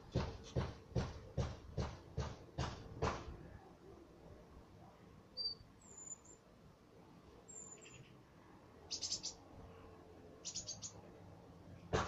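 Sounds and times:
small bird chirping: 0:05.4 - 0:06.4, 0:07.5 - 0:08.2, 0:08.8 - 0:09.5, 0:10.4 - 0:11.1.

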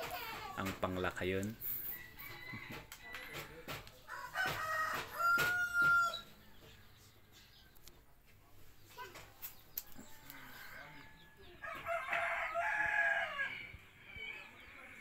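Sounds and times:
rooster crowing: 0:01.9 - 0:06.3, 0:11.6 - 0:14.5.

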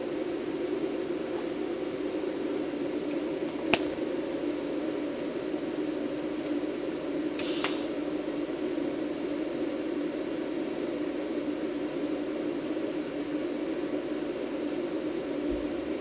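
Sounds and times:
sharp click: 0:07.4 - 0:07.9
brief hiss: 0:07.4 - 0:08.0
welding machine humming: 0:07.4 - 0:16.0.

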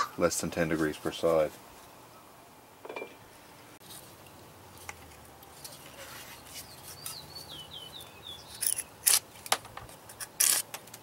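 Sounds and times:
bird chirping: 0:05.8 - 0:09.0.

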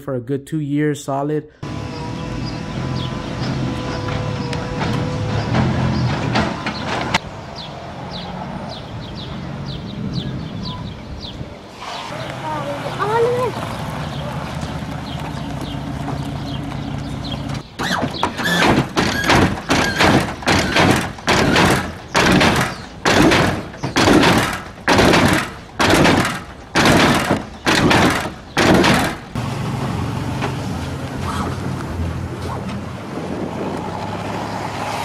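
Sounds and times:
loud abrupt engine bursts: 0:01.6 - 0:06.8
thunks: 0:04.0 - 0:07.2, 0:17.4 - 0:29.4.

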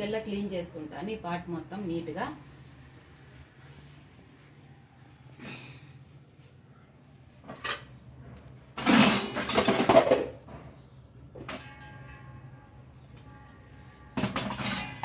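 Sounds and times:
metal pots clattering: 0:08.8 - 0:12.3, 0:14.2 - 0:15.0.

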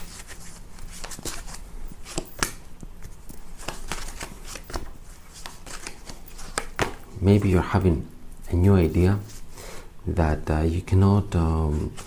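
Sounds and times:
cards being shuffled: 0:00.0 - 0:07.5, 0:11.7 - 0:12.0.

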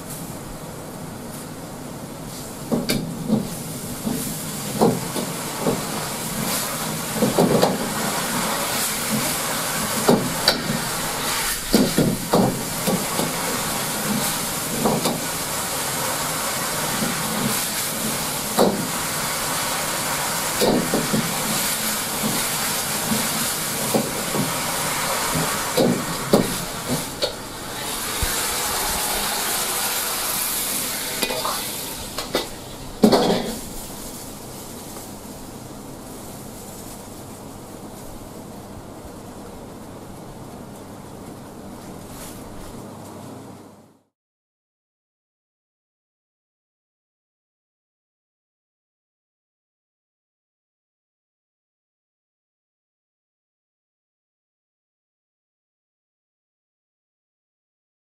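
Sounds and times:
steam hissing: 0:01.2 - 0:37.2
ladle knocking and scraping wok: 0:20.6 - 0:33.7.

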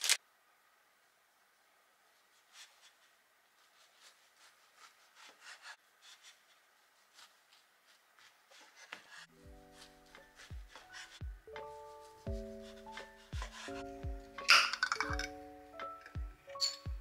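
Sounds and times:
knife sawing through bread: 0:03.7 - 0:07.6.

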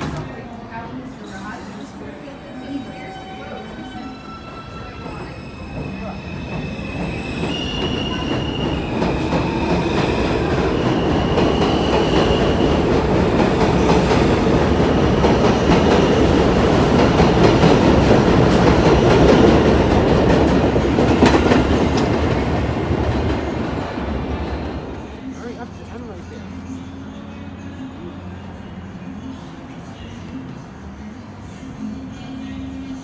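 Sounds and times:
train rumble: 0:00.0 - 0:32.2
train wheels squealing: 0:02.4 - 0:12.6.

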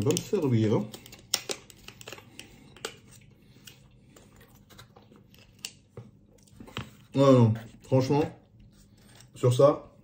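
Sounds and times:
plastic pot clicking and crinkling: 0:00.0 - 0:03.0.

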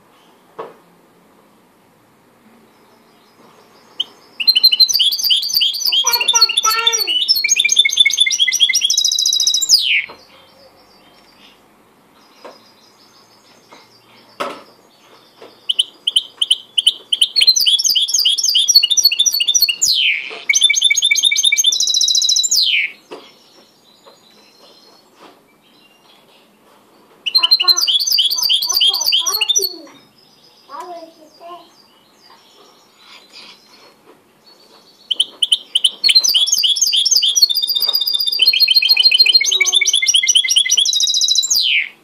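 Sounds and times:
bird singing fast high trills: 0:03.9 - 0:10.1, 0:15.6 - 0:23.0, 0:27.3 - 0:29.9, 0:35.1 - 0:42.0.

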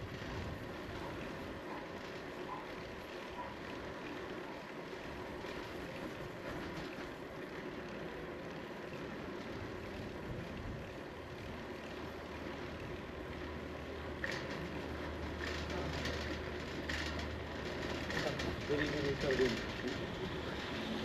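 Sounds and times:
bicycle tyres on asphalt: 0:00.0 - 0:21.0
light rattles: 0:09.0 - 0:21.0.

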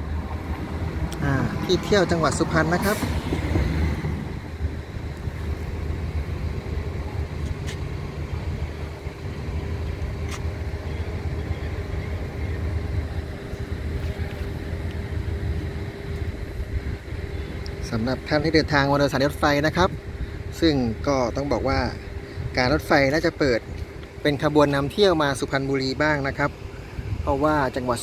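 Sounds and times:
engine humming: 0:00.0 - 0:28.0.

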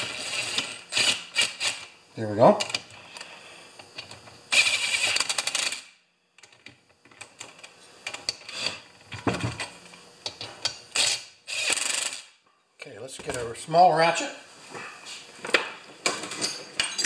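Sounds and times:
cordless drill driving a screw: 0:00.0 - 0:01.8, 0:04.5 - 0:05.8, 0:10.9 - 0:12.2
drill rapid clicking: 0:00.0 - 0:01.9, 0:04.5 - 0:05.9, 0:10.9 - 0:12.3.

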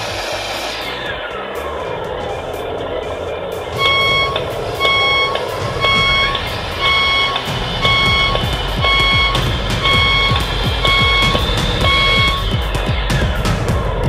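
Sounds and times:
diesel engine running: 0:00.0 - 0:14.0
rising whine: 0:00.0 - 0:14.0
reversing beeper: 0:02.3 - 0:13.4.

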